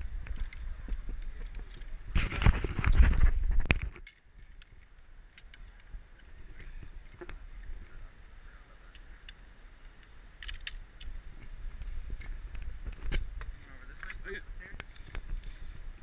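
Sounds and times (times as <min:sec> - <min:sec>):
camera jostling rumble: 0:00.0 - 0:08.0, 0:10.4 - 0:16.0
metallic clicks of harness gear: 0:00.2 - 0:06.3, 0:10.4 - 0:11.1.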